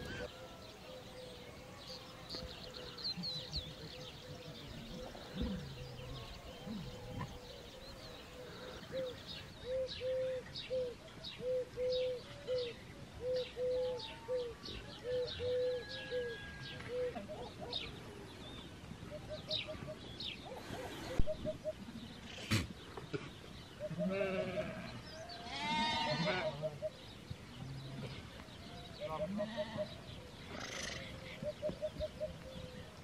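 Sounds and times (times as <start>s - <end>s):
small birds chirping: 0.0s - 33.0s
dove cooing: 2.6s - 17.8s, 29.0s - 33.0s.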